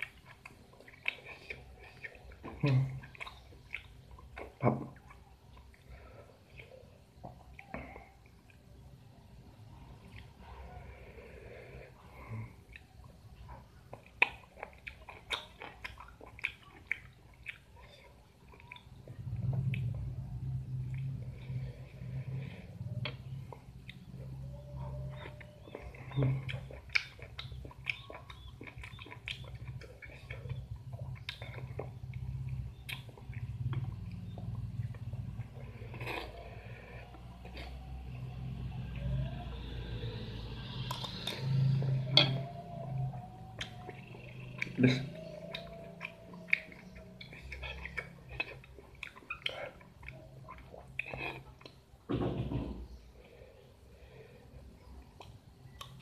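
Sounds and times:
man chewing: 0.0 - 8.9, 9.6 - 52.1, 52.9 - 56.0
mouth clicks and lip smacks: 13.9 - 20.0, 25.1 - 36.4, 40.8 - 51.8, 55.0 - 56.0
wet mouth clicks and smacks: 13.9 - 20.0, 40.6 - 42.5, 55.1 - 56.0.

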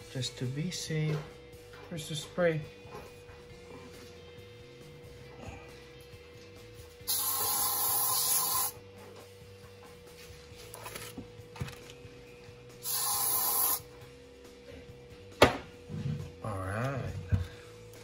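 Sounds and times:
aerosol spray can hissing: 7.1 - 8.8, 12.8 - 13.8.

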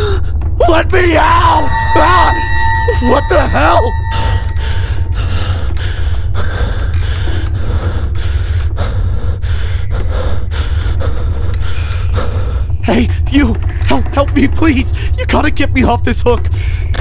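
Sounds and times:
steady low drone: 0.0 - 17.0
man breathing heavily: 4.4 - 13.8.

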